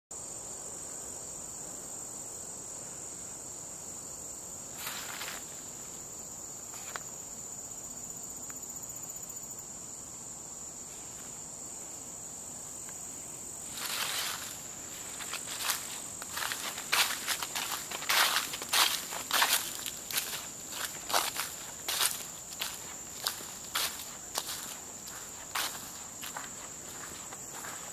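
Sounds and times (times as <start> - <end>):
insects droning: 0.1 - 27.9
rustle: 0.2 - 27.9
footsteps on dry leaves: 4.8 - 5.6, 13.7 - 27.9.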